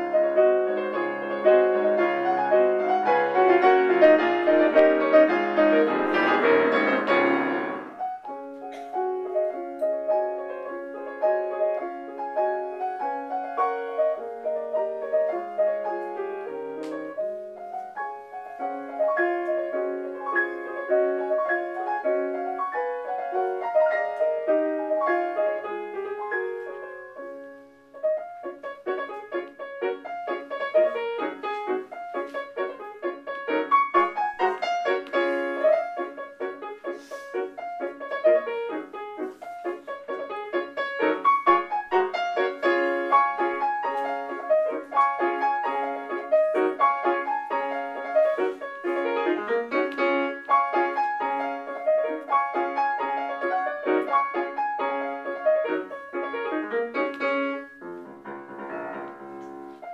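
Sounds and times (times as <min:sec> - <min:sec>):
solo piano classical piece: 0:00.0 - 0:59.9.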